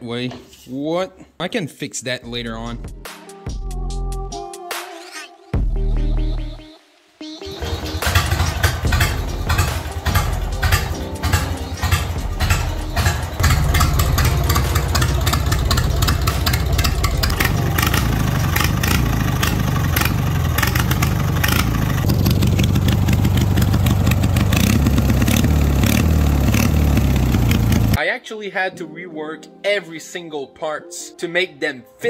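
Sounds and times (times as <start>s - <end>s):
lawn tractor engine running: 7.5s - 28.0s
rapid irregular clicking: 7.6s - 25.4s.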